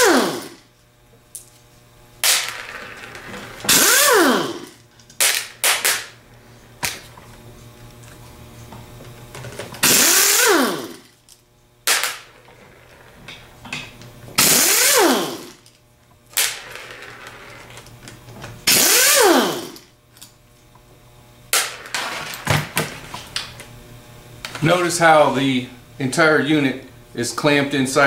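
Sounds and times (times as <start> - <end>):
impact wrench bursts: 0.0 - 0.7, 3.6 - 6.1, 9.8 - 11.2, 14.4 - 15.7, 18.6 - 19.9.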